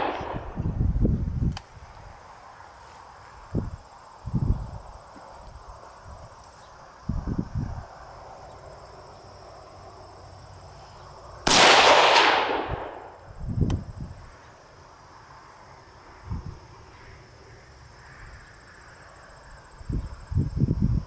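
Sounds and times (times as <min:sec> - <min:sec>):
rifle shot: 0:00.0 - 0:00.6, 0:11.5 - 0:13.2
insects chirring: 0:00.0 - 0:21.0.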